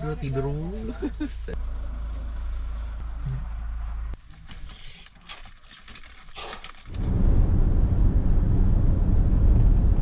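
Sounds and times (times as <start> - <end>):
car cabin road rumble: 0.0 - 4.8, 6.9 - 10.0.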